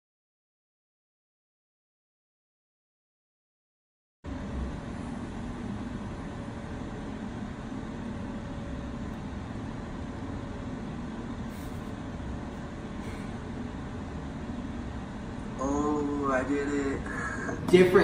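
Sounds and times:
faint steady hum: 4.3 - 18.0
low rumbling background noise: 4.3 - 18.0.

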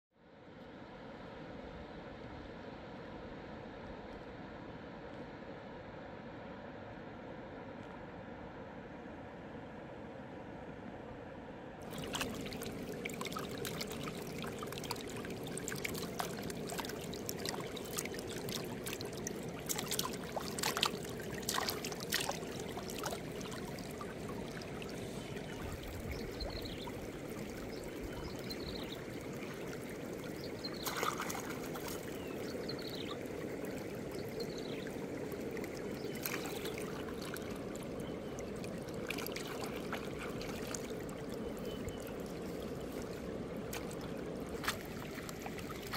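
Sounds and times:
splashes and knocks: 11.8 - 27.0, 30.7 - 32.3, 36.1 - 37.6, 43.7 - 45.9
stream flowing over rocks: 11.8 - 45.9.

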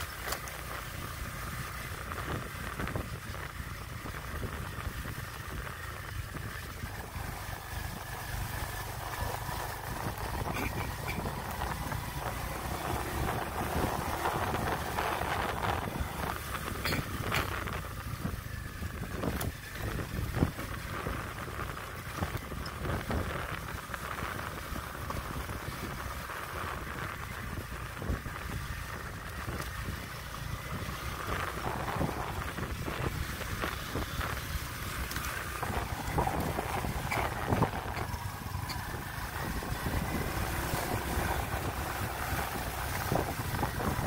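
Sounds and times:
motorbike running: 0.0 - 44.0
wind buffeting microphone: 0.8 - 44.0.

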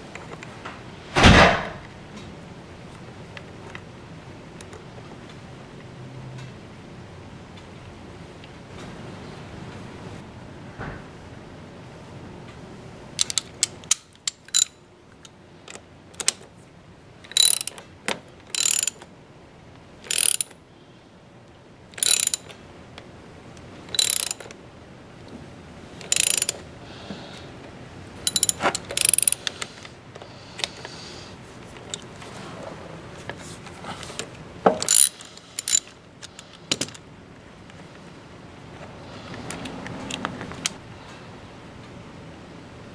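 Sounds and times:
ratchet wrench clicking: 13.2 - 14.8, 17.3 - 17.8, 18.5 - 19.0, 20.0 - 20.6, 22.0 - 22.5, 23.9 - 24.5, 26.0 - 26.6, 28.3 - 29.5, 34.8 - 36.4.

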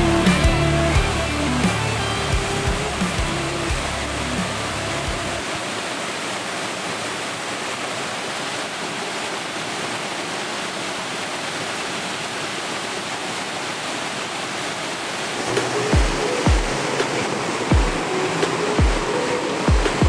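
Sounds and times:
waterfall rushing over rock: 0.0 - 20.0.

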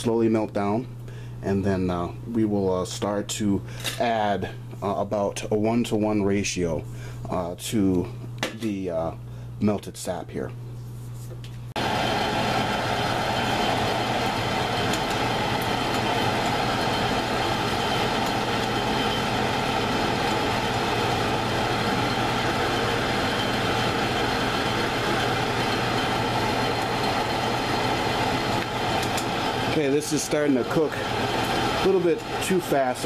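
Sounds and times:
sap sizzling in a pot: 11.8 - 33.0.

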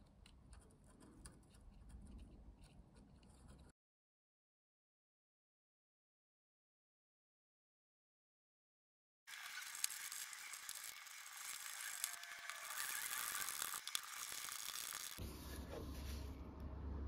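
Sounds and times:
screwdriver turning screws in plastic: 9.3 - 15.2
low steady hum: 15.0 - 17.0.

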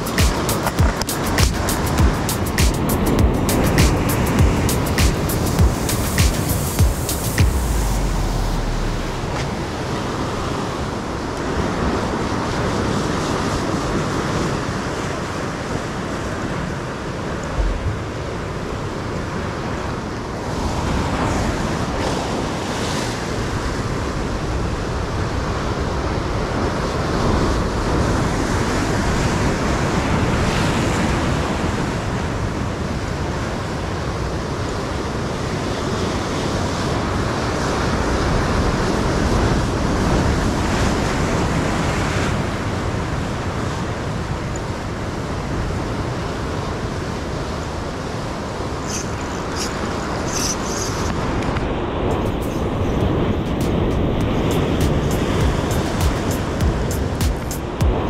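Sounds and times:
ocean surf on beach: 0.0 - 58.0
wind buffeting microphone: 15.8 - 33.4.

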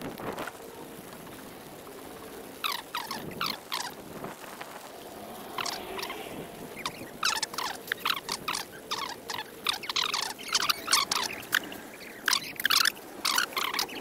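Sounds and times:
raindrops tapping on umbrella: 0.0 - 6.1
faint hiss of rain: 0.0 - 14.0.

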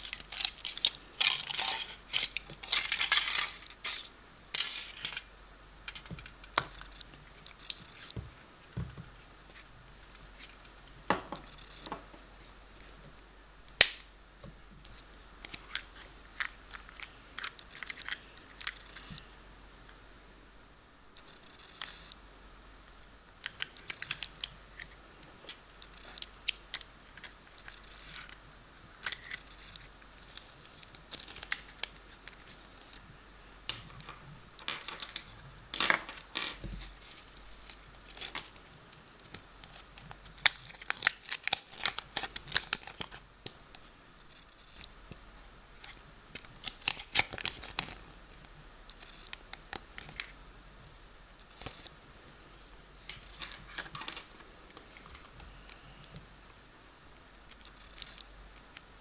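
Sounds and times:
paper crinkling and rustling: 0.0 - 5.3, 36.6 - 43.2, 45.7 - 48.0.

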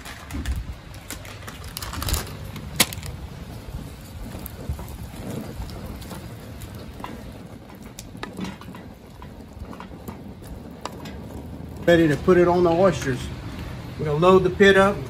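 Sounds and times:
gas burner running: 0.0 - 15.0.

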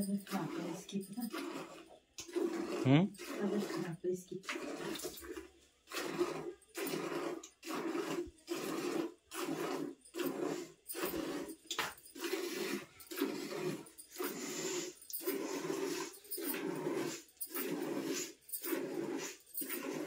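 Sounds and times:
milk squirting into a steel pail: 0.0 - 20.0.

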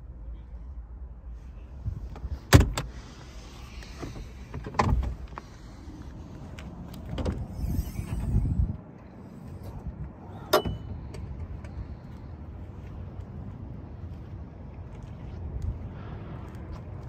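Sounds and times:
steady low background noise: 0.0 - 7.3.

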